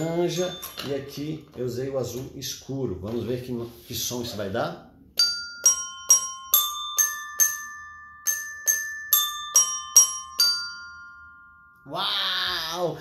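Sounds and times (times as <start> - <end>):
desk bells ringing a tune: 0.0 - 2.0, 5.2 - 12.8.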